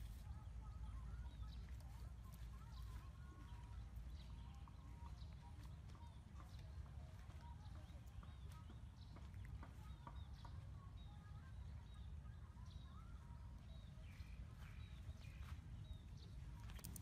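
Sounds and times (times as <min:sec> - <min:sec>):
faint clicks: 0:16.6 - 0:17.0.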